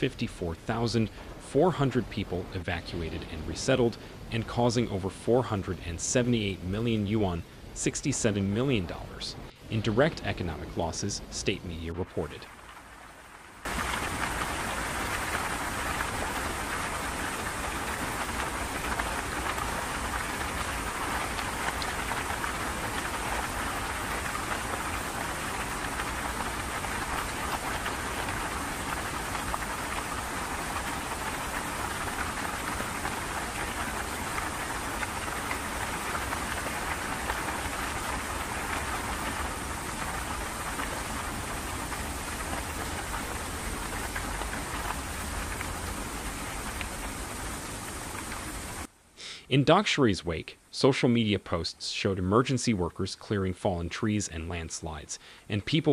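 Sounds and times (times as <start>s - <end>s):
floodwater rushing down a street: 9.7s - 48.9s.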